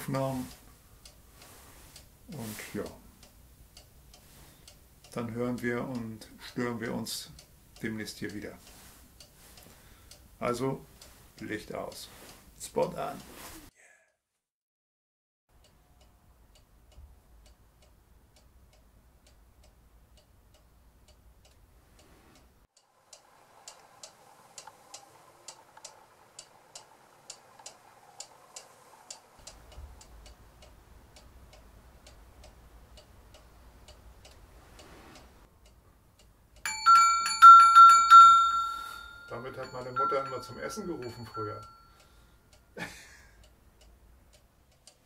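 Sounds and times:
clock ticking faintly: 0.0s - 13.5s, 15.5s - 45.0s
small metal bells ringing: 36.7s - 42.1s.

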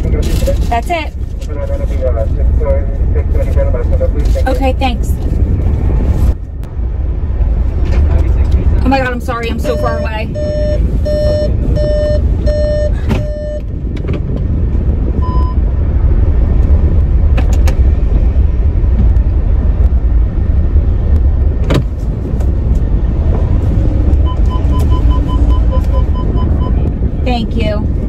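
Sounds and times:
car engine and road rumble: 0.0s - 28.0s
electronic beeps: 9.6s - 13.6s, 24.2s - 26.8s.

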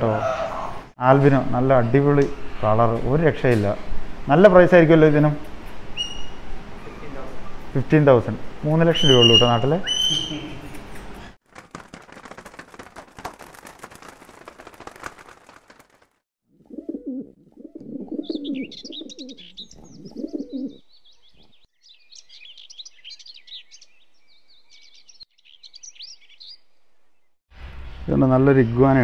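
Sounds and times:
flapping wings: 11.4s - 16.2s
pigeons cooing: 16.7s - 20.8s
small birds chirping: 17.7s - 27.4s.

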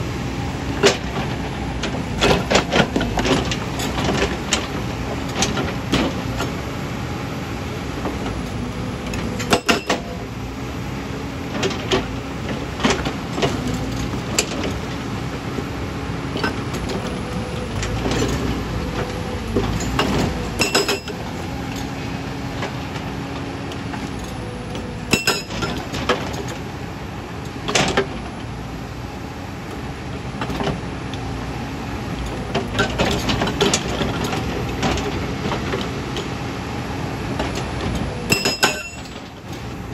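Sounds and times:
excavator engine running: 0.0s - 39.9s
hydraulic rock breaker hammering: 17.7s - 21.2s, 24.8s - 26.4s, 37.4s - 39.2s.

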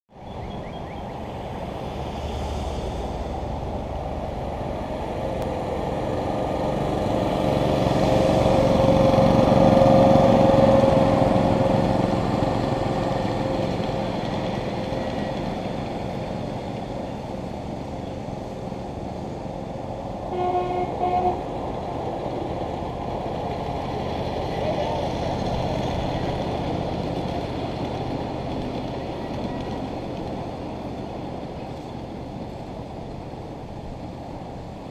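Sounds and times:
miniature train rumbling on rails: 0.2s - 34.9s
train horn tooting: 20.3s - 21.5s.

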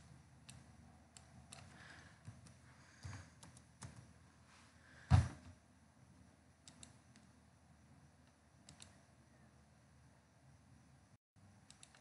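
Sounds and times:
computer keyboard key presses: 11.7s - 12.0s.

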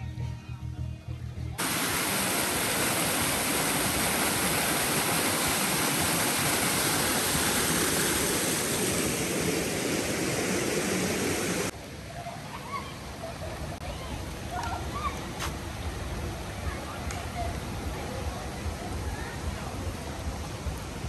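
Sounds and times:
water splashing from a fountain: 1.6s - 21.0s.

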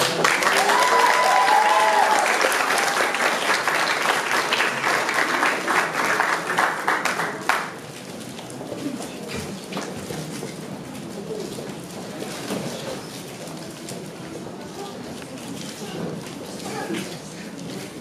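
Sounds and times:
audience applauding: 0.0s - 7.9s
high cry from crowd: 0.5s - 3.2s.

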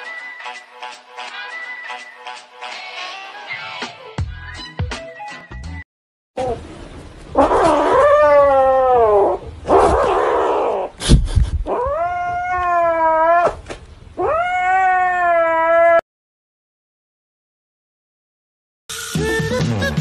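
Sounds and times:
kitten growling yowls: 7.4s - 11.0s, 11.7s - 13.6s, 14.2s - 16.0s.

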